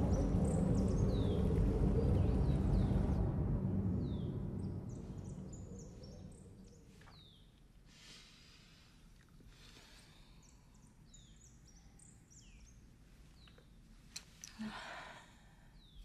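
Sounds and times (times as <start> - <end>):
birds chirping: 0.0 - 3.2, 4.0 - 7.6, 9.6 - 15.0
soft breaths: 7.8 - 12.3, 13.0 - 16.0.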